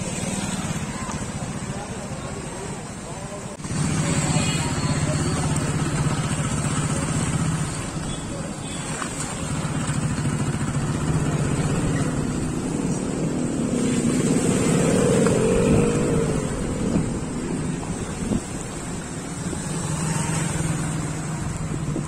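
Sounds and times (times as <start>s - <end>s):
motorcycle engine revving: 3.6s - 8.0s, 9.2s - 18.5s.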